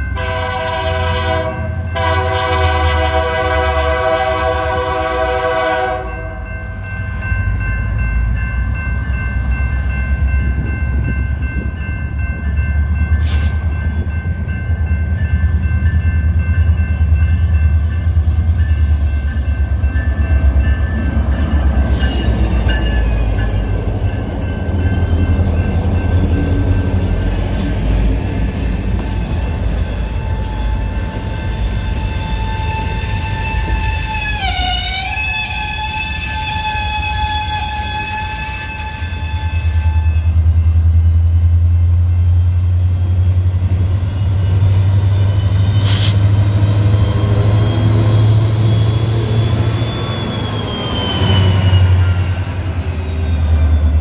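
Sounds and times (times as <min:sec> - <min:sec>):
diesel locomotive engine rumble: 0:00.0 - 0:54.0
crossing signal warning tones: 0:05.0 - 0:37.6.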